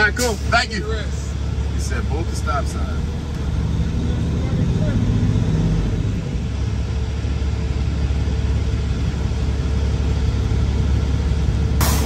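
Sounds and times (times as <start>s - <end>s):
truck diesel engine idling: 0.0s - 12.0s.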